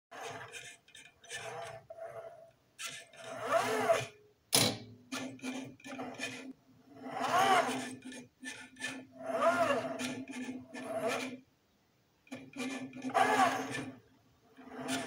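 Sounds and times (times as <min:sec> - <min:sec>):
pen plotter arm moving: 0:05.2 - 0:11.4, 0:12.3 - 0:14.0, 0:14.6 - 0:15.0.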